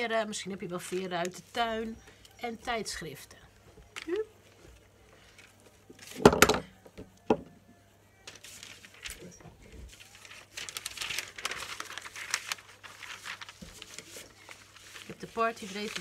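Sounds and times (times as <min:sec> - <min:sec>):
magazine pages rustling: 0:00.7 - 0:02.0, 0:03.9 - 0:06.3, 0:08.2 - 0:16.0.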